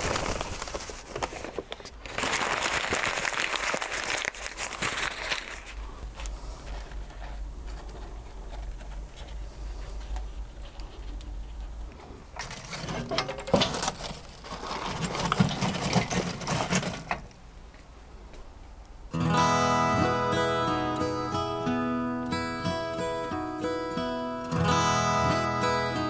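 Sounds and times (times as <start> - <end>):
grill grate and charcoal clattering: 6.6 - 17.4
acoustic guitar music: 19.1 - 26.0.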